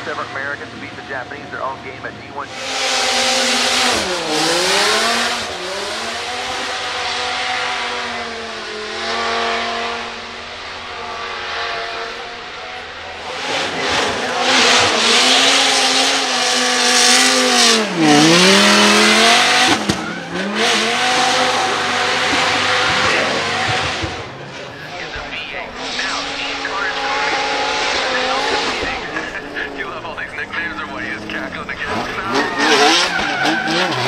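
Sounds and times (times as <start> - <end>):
car engine revving: 0.0 - 34.0
tyres squealing: 30.5 - 34.0.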